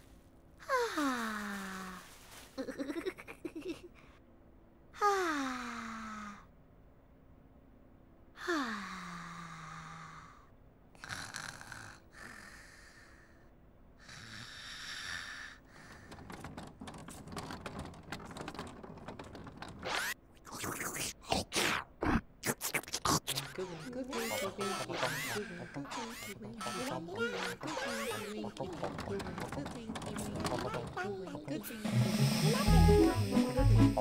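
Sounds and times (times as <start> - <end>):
sleepy sigh: 5.0 - 6.5, 8.4 - 10.5
breathy snores: 11.0 - 13.3
quick clicks and squeaks: 16.1 - 20.2, 24.2 - 31.1.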